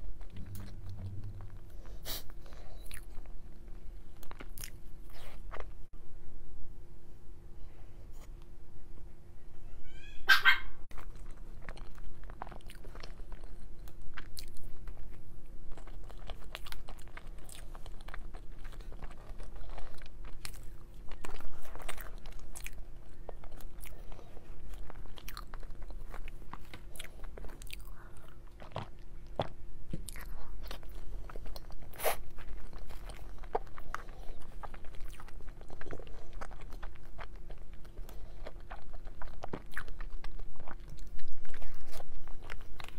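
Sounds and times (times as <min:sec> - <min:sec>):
person chewing with mouth clicks: 0:00.0 - 0:05.7, 0:10.9 - 0:42.9
faint steady hum: 0:00.0 - 0:42.9
dog whining: 0:09.6 - 0:10.8.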